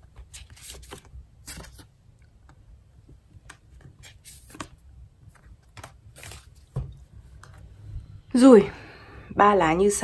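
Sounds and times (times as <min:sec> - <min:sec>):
low room hum: 0:00.0 - 0:10.0
cards sliding and tapping: 0:00.2 - 0:02.6, 0:03.4 - 0:06.6.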